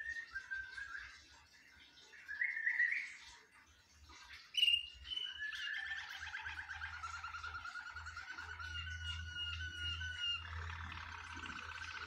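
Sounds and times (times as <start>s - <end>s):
canary singing: 4.4s - 12.0s.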